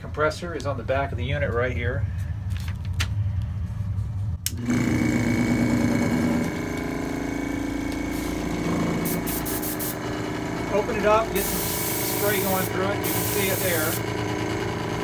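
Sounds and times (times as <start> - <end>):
air compressor humming: 4.3 - 15.0.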